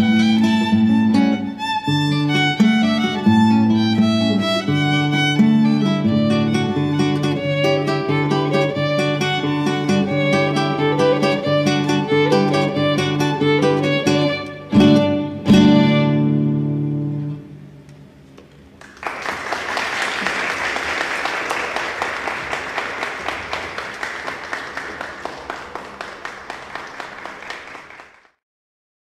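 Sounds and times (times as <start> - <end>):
violin and guitar chord: 0.0 - 17.7
audience applause: 18.8 - 28.4.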